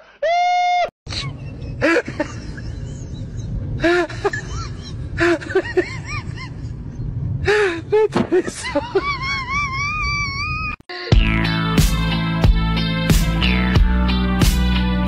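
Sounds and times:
train carriage rumble: 1.1s - 9.8s.

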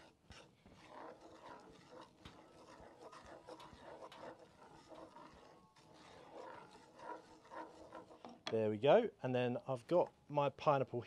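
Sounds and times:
wooden spoon scraping skillet: 0.0s - 8.5s.

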